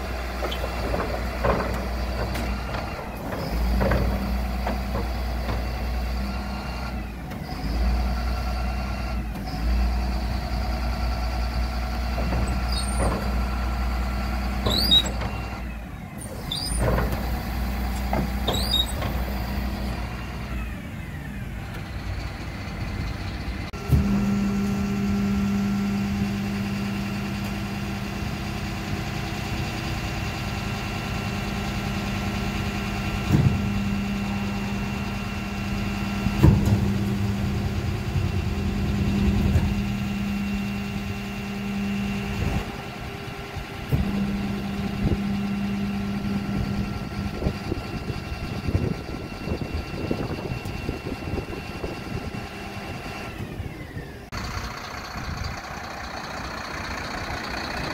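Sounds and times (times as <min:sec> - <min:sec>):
hydraulic bin lift: 0:00.0 - 0:57.9
truck engine running: 0:00.0 - 0:57.9
short squeaks from the lift: 0:00.4 - 0:01.1, 0:12.4 - 0:13.4, 0:14.6 - 0:15.6, 0:16.2 - 0:17.3, 0:18.4 - 0:19.2.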